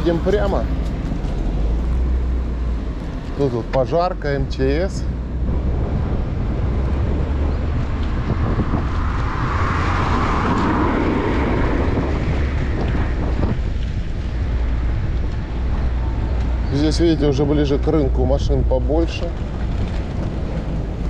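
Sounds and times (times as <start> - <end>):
road traffic: 0.0 - 21.0
vehicle passing: 0.0 - 21.0
wind buffeting microphone: 4.3 - 21.0.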